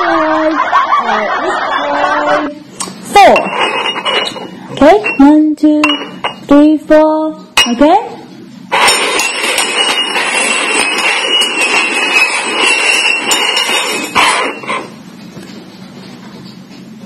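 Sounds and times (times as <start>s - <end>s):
metal cups scraping on table: 3.2s - 5.3s, 8.7s - 15.0s.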